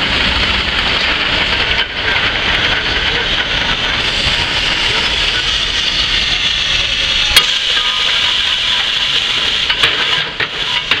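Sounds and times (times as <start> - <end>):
steam hissing: 0.0 - 11.0.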